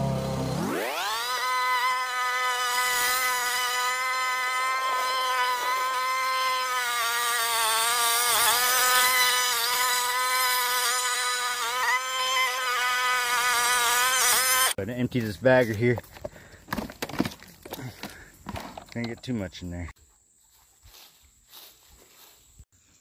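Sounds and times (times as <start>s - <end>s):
small motor high whine: 0.0s - 14.8s.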